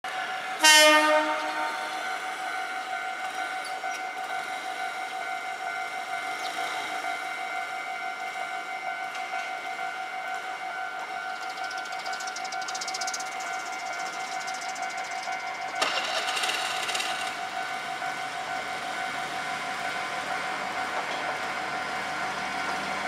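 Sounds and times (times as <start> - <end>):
level crossing alarm ringing: 0.2 - 23.0
train horn: 0.4 - 2.2.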